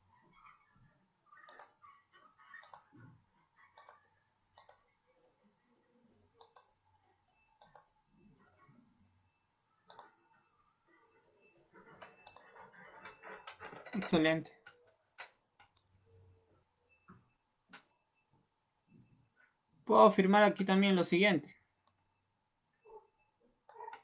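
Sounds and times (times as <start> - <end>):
computer mouse clicks: 1.3 - 1.9, 2.5 - 3.1, 3.7 - 4.9, 6.3 - 6.8, 7.6 - 7.9, 9.8 - 10.2, 12.1 - 15.9, 23.4 - 24.0.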